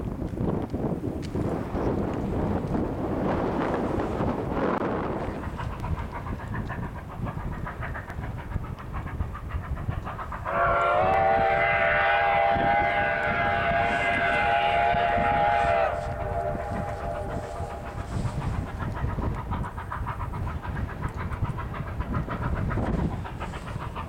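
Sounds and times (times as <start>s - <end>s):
low rumble of train: 0.0s - 24.0s
steam locomotive whistle: 10.4s - 18.3s.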